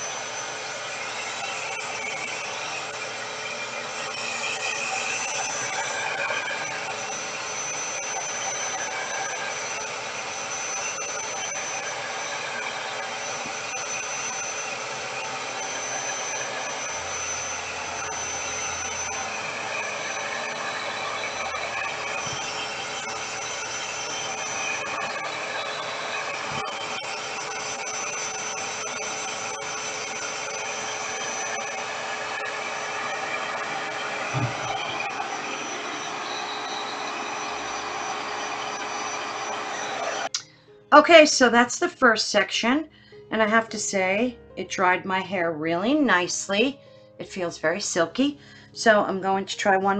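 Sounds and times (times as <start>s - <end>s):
hair dryer running: 0.0s - 40.5s
short thump: 34.3s - 34.8s.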